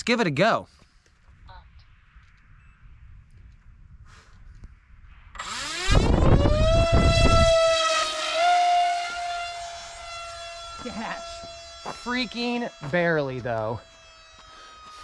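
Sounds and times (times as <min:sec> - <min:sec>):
electric motor and propeller whine: 0:05.2 - 0:15.0.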